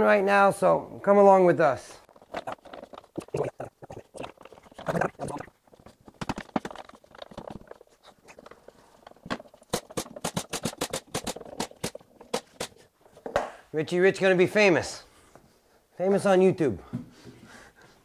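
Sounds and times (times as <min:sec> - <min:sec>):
boards and tools clattering: 0:02.1 - 0:03.2, 0:04.2 - 0:13.6
fast sharp taps: 0:09.6 - 0:12.8.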